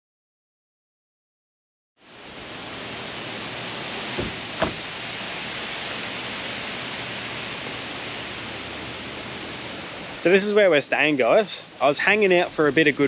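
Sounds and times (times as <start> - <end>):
wind rushing outdoors: 2.0 - 13.0
short knocks: 4.2 - 4.9.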